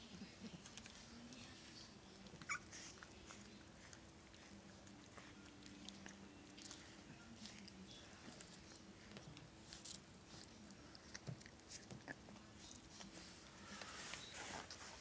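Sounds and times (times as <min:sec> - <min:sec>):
faint low hum: 0:00.0 - 0:15.0
puppy squeak: 0:02.4 - 0:02.9.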